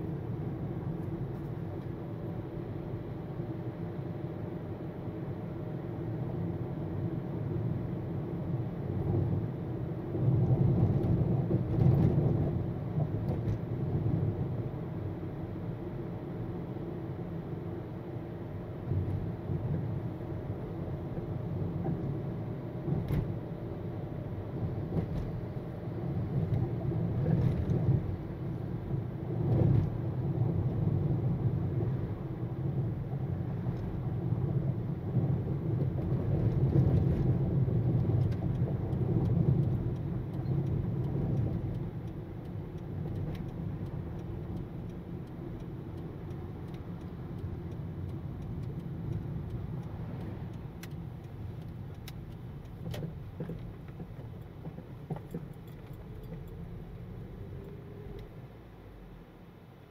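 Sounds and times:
car engine and road noise: 0:00.0 - 0:59.9.

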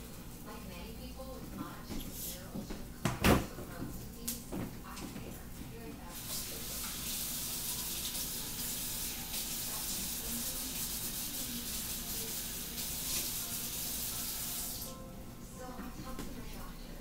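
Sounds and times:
water running from tap into sink: 0:06.1 - 0:15.0.

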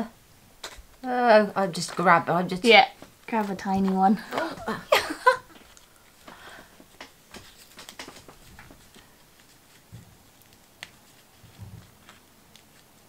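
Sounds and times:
gift packaging rustling: 0:02.7 - 0:13.0.

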